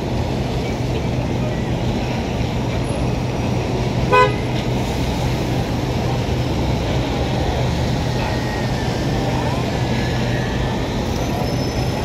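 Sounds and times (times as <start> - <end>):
street traffic rumble: 0.0 - 12.0
vehicle horn toot: 4.1 - 4.5.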